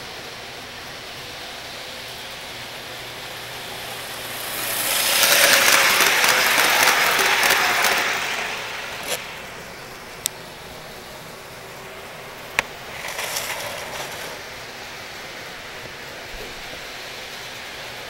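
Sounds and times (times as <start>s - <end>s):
model train wheels rattling: 1.7s - 10.2s, 12.3s - 15.2s.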